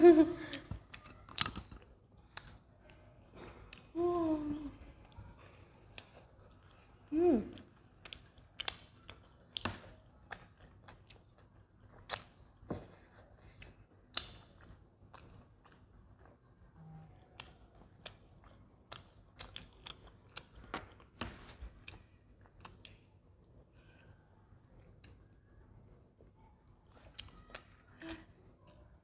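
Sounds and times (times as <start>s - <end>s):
chewing with wet mouth clicks: 0.8s - 4.0s, 4.9s - 24.2s, 24.8s - 25.4s, 26.3s - 29.0s
person humming: 4.0s - 4.8s.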